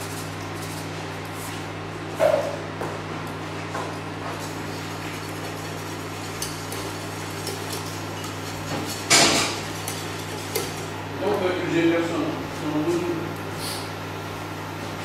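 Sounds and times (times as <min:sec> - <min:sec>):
whisk in saucepan: 0:04.2 - 0:11.6.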